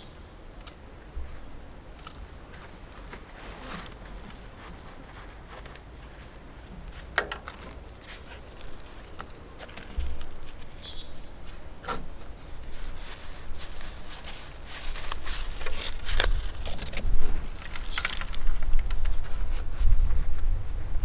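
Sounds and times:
soil rustling and crumbling: 0:00.6 - 0:20.4
plastic pot crackling: 0:07.0 - 0:11.7, 0:12.4 - 0:19.6.

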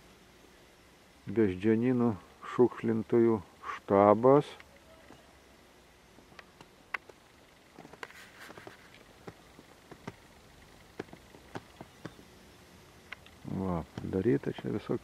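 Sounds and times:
faint clicks and taps: 0:06.3 - 0:10.3, 0:13.1 - 0:14.2
brief rustle: 0:07.8 - 0:09.1.

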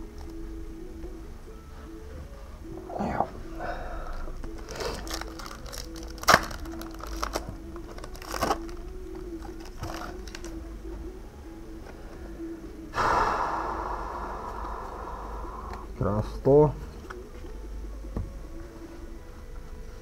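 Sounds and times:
faint background music: 0:00.0 - 0:20.0
wrappers and cards rustling: 0:04.2 - 0:10.6
sharp wrapper crack: 0:04.5 - 0:10.6.

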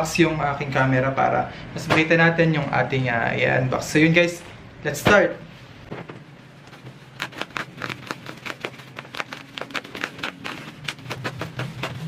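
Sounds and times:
bubble wrap crackling: 0:06.7 - 0:12.0.

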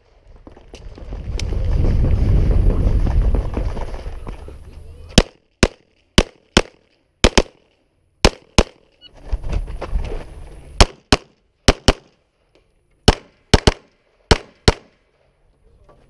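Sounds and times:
pistol shots: 0:05.2 - 0:08.9, 0:10.8 - 0:12.2, 0:13.1 - 0:15.0.

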